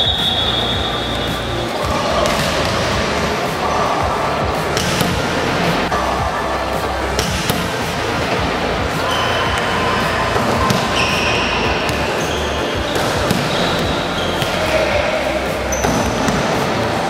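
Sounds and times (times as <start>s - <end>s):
sneaker squeaks: 0.0s - 3.0s, 8.8s - 16.6s
volleyballs hit and bouncing: 0.0s - 17.0s.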